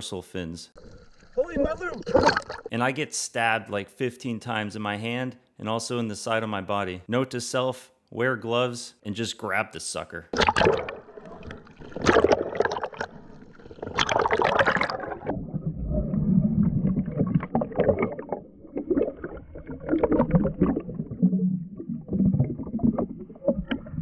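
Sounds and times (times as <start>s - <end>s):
water sloshing and bubbling: 0.8s - 2.7s, 10.3s - 24.0s.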